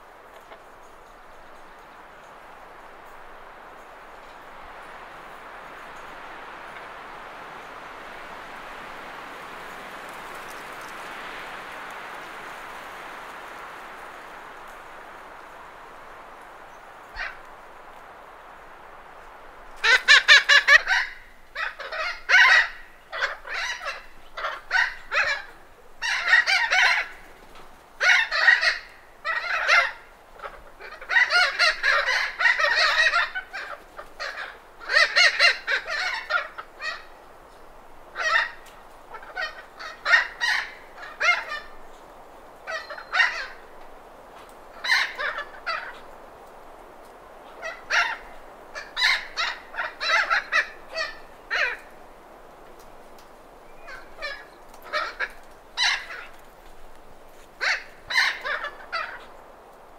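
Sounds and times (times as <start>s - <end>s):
wind noise: 0.0s - 59.9s
parrots calling: 19.8s - 27.1s, 38.1s - 41.8s, 42.6s - 43.7s, 44.7s - 46.1s, 47.6s - 52.0s, 53.6s - 56.4s, 57.4s - 59.3s.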